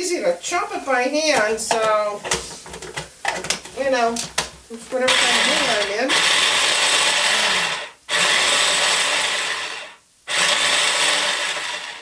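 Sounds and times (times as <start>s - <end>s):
electric food chopper running: 5.1s - 12.0s.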